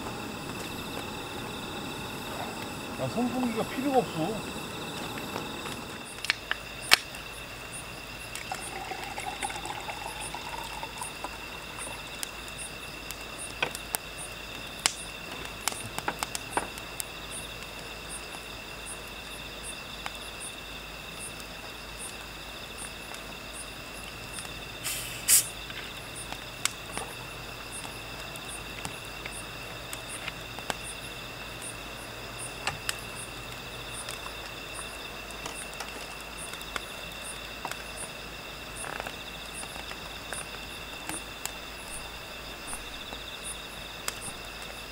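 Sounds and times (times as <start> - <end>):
fire pops: 0.0 - 19.3, 24.0 - 38.1, 38.7 - 44.9
night insects chirring: 0.0 - 44.9
wood fire crackling: 0.0 - 44.9.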